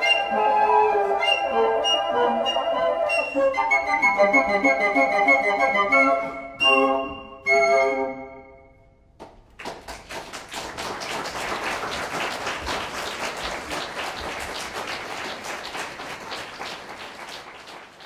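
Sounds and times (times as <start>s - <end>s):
audience applauding: 9.2s - 18.0s.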